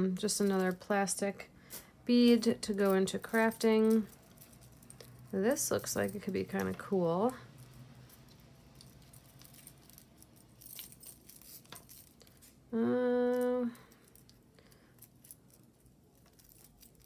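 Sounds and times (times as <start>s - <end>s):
metal jewelry clinking: 1.7s - 17.0s
woman humming: 12.7s - 13.9s.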